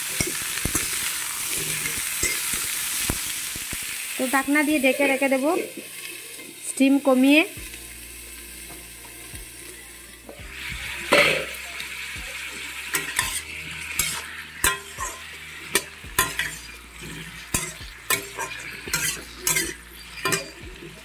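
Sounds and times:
vegetables sizzling in oil: 0:00.0 - 0:21.0
metal spatula clinking on pan: 0:14.0 - 0:16.6, 0:17.5 - 0:20.6.

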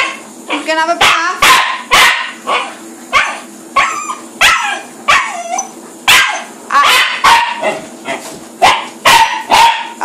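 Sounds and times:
dog barking: 0:00.0 - 0:10.0.

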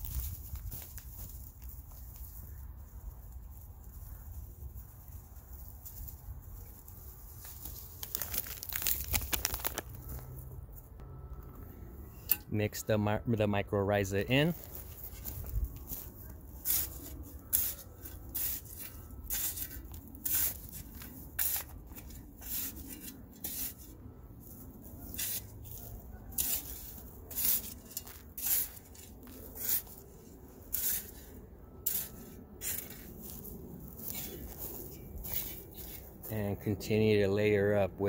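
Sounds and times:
shovel scraping soil: 0:14.3 - 0:36.4.

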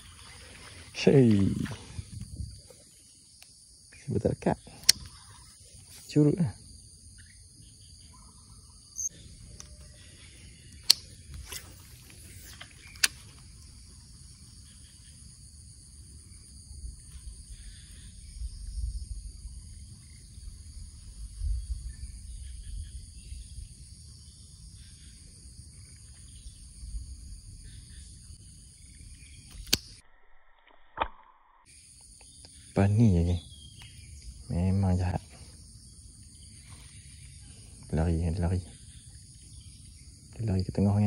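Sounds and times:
insect chorus drone: 0:00.0 - 0:30.7, 0:31.5 - 0:41.0
sharp clicks: 0:04.8 - 0:05.2, 0:10.7 - 0:11.8, 0:12.4 - 0:13.4, 0:29.4 - 0:30.0.

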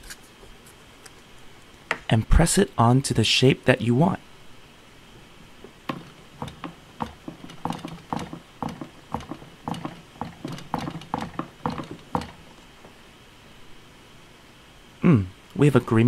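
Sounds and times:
fingertips tapping dough on plastic: 0:05.8 - 0:12.5.

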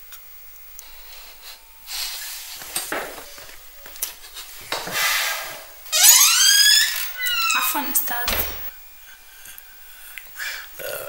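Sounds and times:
wooden door hinges squeaking: 0:05.9 - 0:08.7.

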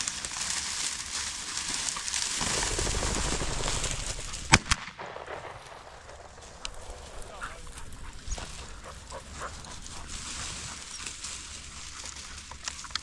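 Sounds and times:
steady rustling noise: 0:00.0 - 0:13.0
shotgun shots: 0:02.4 - 0:07.8.

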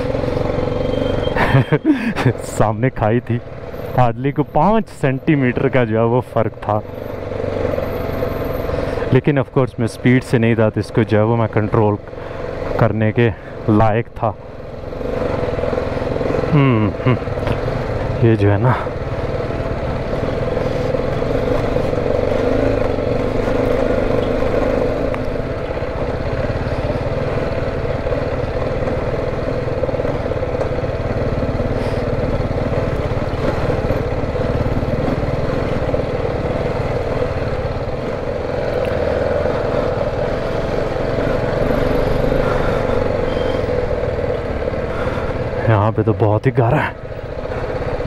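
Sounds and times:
low rumble from riding: 0:00.0 - 0:48.0
motorcycle engine running: 0:00.0 - 0:48.0.

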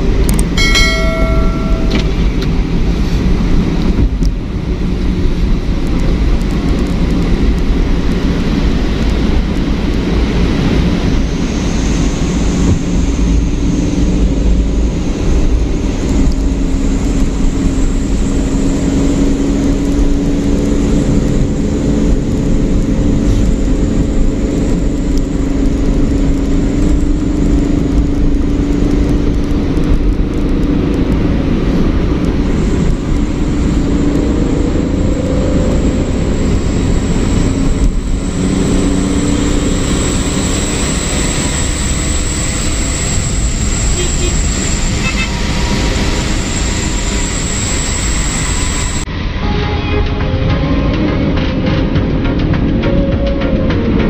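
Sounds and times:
road and wind noise: 0:00.0 - 0:54.0
vehicle engine hum: 0:00.0 - 0:54.0.

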